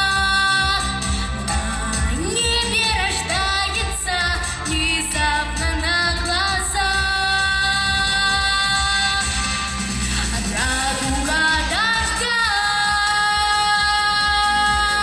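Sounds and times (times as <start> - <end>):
girl singing into microphone: 0.0 - 9.4, 10.5 - 15.0
backing music: 0.0 - 15.0.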